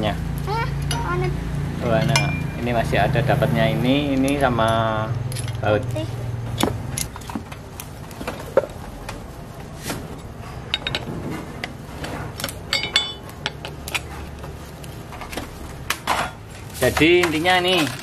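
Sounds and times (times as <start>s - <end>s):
hand tool clinking on metal: 2.0s - 2.7s, 12.7s - 14.0s.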